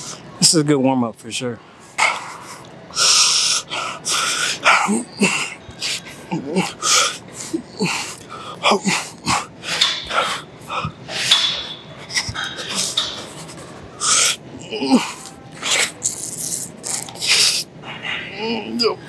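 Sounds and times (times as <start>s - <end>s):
man breathing hard: 1.7s - 15.4s
man grunting: 6.3s - 9.5s, 14.5s - 15.3s.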